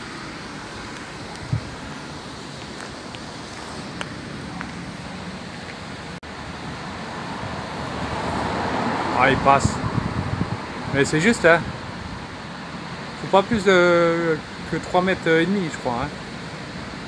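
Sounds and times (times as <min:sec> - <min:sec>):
wind on microphone: 0:01.0 - 0:02.0, 0:09.4 - 0:11.0.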